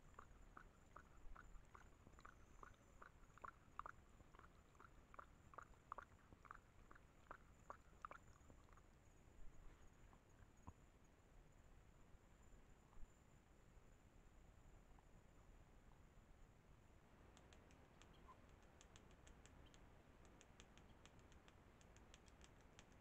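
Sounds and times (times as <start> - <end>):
animal lapping water: 0.0 - 8.9.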